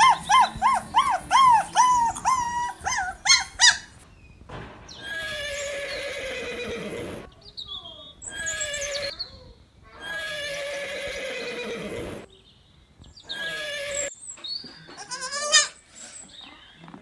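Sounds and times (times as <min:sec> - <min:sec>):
horse neighing: 0:00.0 - 0:03.9, 0:05.0 - 0:07.3, 0:10.0 - 0:12.3, 0:13.3 - 0:14.1.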